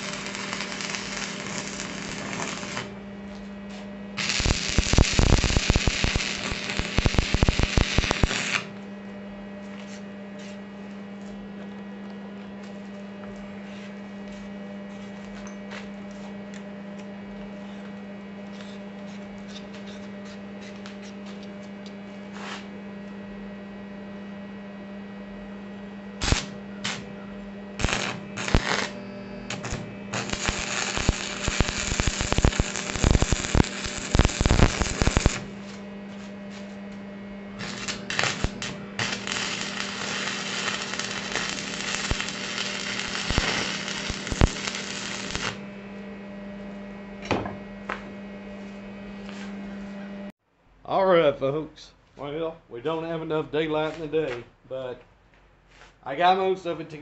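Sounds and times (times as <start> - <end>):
arc welder crackling: 0.0 - 8.9, 26.1 - 46.4
steady hum: 0.0 - 57.0.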